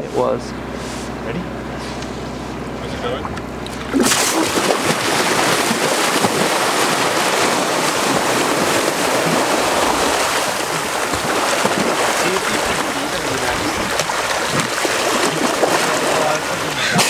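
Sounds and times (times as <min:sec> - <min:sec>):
water rushing and splashing: 0:03.7 - 0:17.0.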